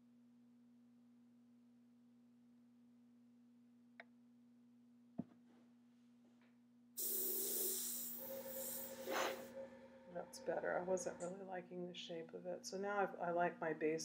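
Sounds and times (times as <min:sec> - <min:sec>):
low steady hum: 0:06.7 - 0:14.0
hiss of blown air: 0:07.0 - 0:10.2.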